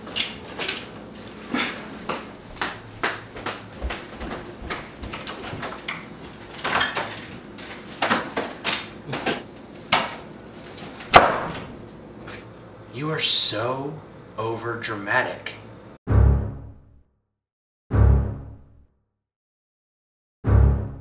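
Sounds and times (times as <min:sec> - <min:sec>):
footsteps walking: 0:00.0 - 0:06.6
front door opening: 0:00.0 - 0:09.4, 0:10.6 - 0:11.9.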